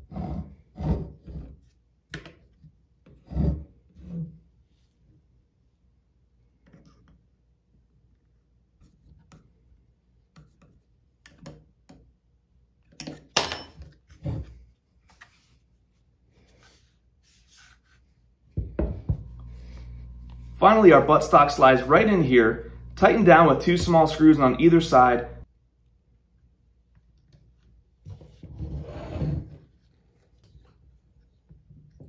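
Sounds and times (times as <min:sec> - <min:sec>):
steady low hum: 0:18.8 - 0:25.5.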